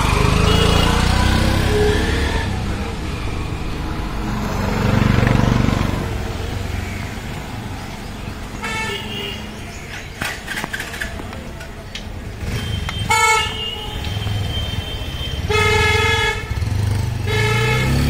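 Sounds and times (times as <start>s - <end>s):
vehicle engine passing: 0.0s - 8.6s
vehicle horn honking: 0.4s - 2.4s, 8.6s - 9.6s, 12.4s - 18.0s.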